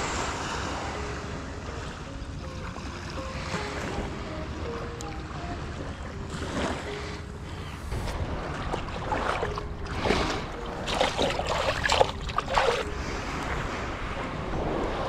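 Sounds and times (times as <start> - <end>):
wind rumble on microphone: 5.7 - 15.0.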